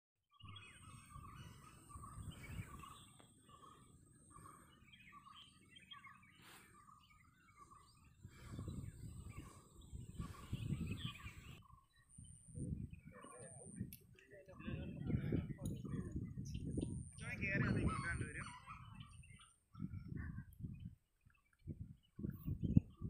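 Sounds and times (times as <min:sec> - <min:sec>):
birds chirping: 0:00.3 - 0:23.0
wind gusts on microphone: 0:00.6 - 0:03.2, 0:07.6 - 0:23.0.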